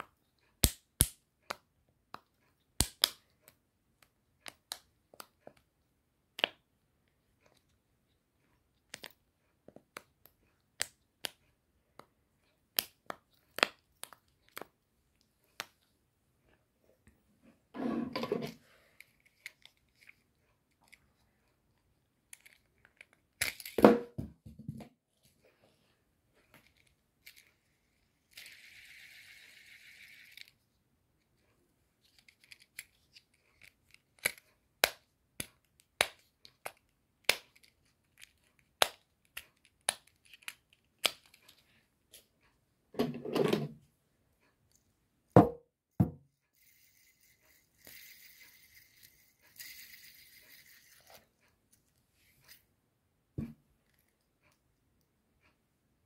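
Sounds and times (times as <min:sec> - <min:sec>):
fidget spinner whirring: 0:28.2 - 0:30.6, 0:46.5 - 0:51.5.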